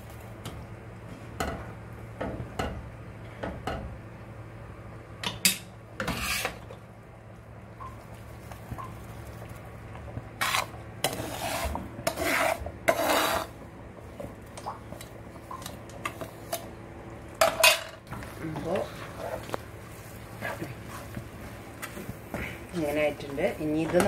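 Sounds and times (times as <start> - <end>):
steady low hum: 0.0 - 24.0
metal spoon scraping pan: 10.4 - 13.5.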